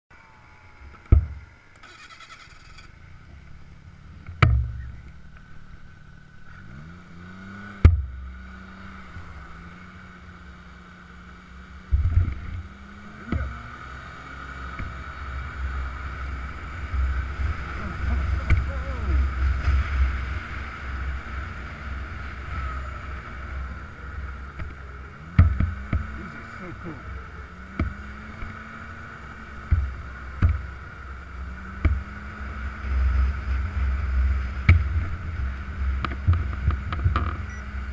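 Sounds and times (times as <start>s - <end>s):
snowmobile engine: 0.2s - 37.9s
sharp knocks from bumps: 24.6s - 26.2s.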